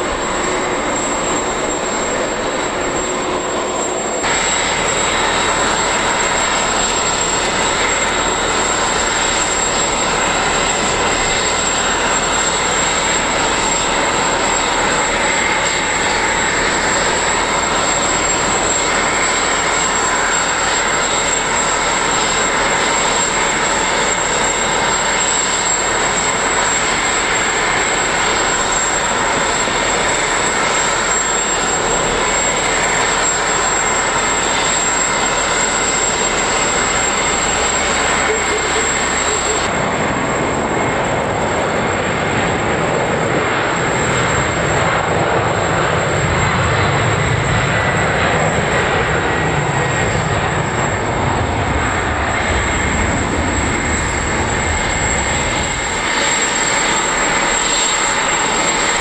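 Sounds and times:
steady jet whine: 0.0 - 59.0.

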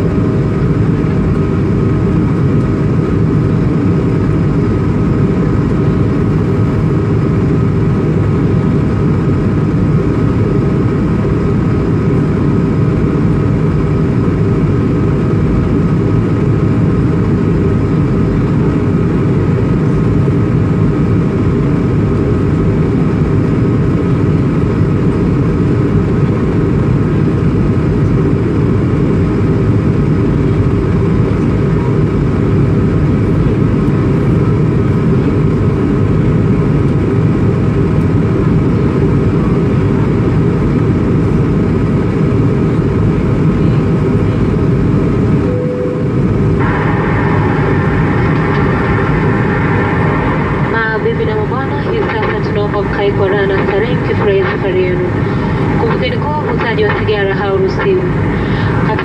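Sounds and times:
aircraft cabin engine rumble: 0.0 - 59.0
faint steady hum: 43.6 - 59.0
rushing air: 45.4 - 59.0.

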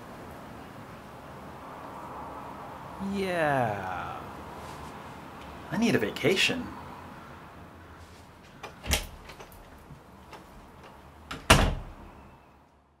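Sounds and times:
door latch click: 8.6 - 9.7
door thud: 8.6 - 9.7, 11.3 - 12.0
door click and bump: 8.6 - 12.0.

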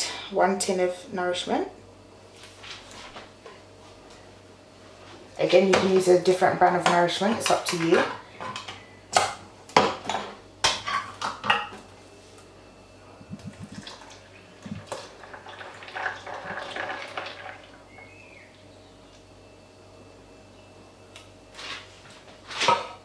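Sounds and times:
thick drink pouring into jug: 14.8 - 17.8.

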